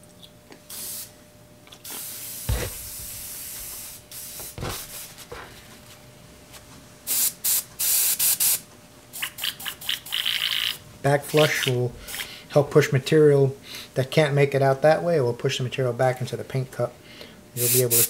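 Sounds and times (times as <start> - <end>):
airbrush hissing bursts: 0.7 - 1.1, 1.9 - 5.1, 7.1 - 8.6, 17.6 - 18.0.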